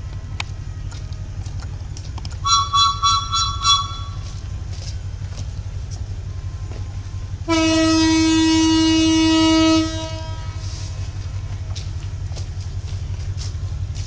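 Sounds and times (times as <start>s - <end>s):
low rumble: 0.0s - 14.0s
locomotive horn blast: 2.4s - 4.6s, 7.4s - 11.0s.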